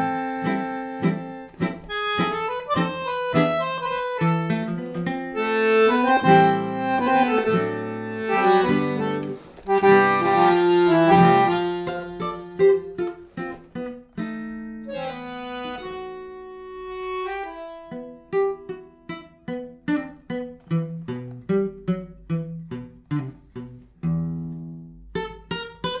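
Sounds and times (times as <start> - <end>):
bandoneon chords and melody: 0.0 - 13.6, 14.7 - 19.5
plucked guitar notes: 0.0 - 26.0.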